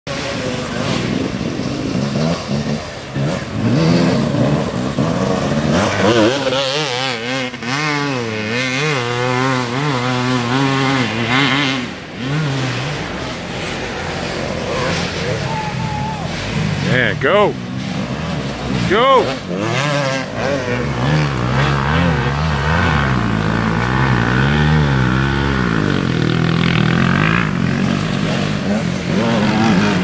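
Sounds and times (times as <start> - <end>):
dirt bike engine revving: 0.1 - 30.0.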